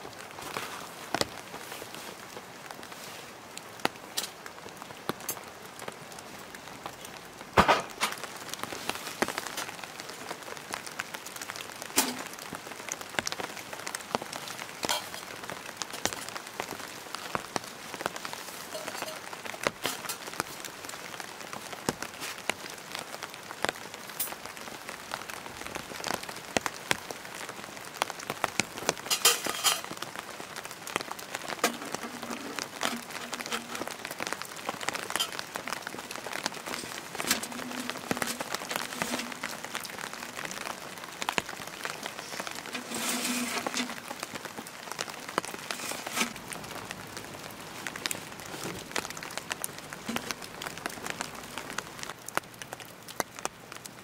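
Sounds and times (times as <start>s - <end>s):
rain pattering on a tent: 0.0s - 54.0s.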